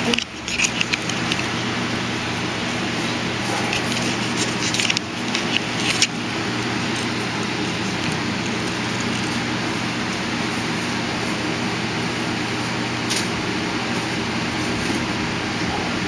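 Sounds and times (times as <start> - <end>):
steady mechanical hum: 0.0 - 16.0.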